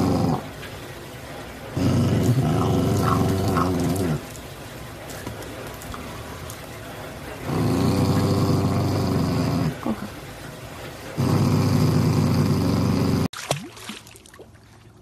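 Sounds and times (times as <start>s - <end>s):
dog growling: 0.0s - 0.5s, 1.7s - 4.4s, 7.4s - 10.2s, 11.1s - 13.3s.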